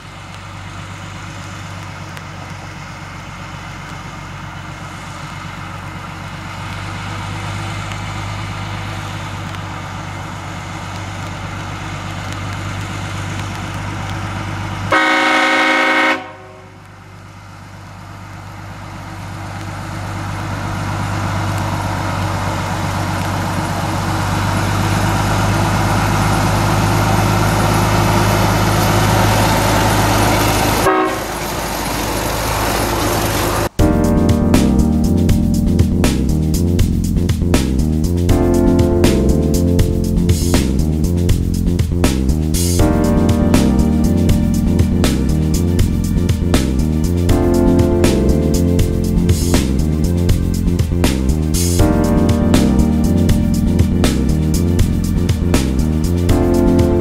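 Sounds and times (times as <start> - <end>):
diesel locomotive engine drone: 0.0 - 57.0
locomotive horn blast: 14.8 - 16.9, 25.6 - 32.0.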